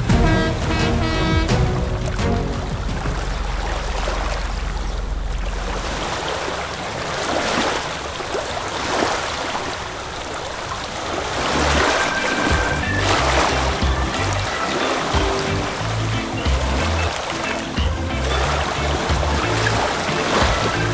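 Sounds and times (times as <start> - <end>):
low rumble: 0.0 - 7.2
sea water sloshing and splashing: 0.0 - 20.9.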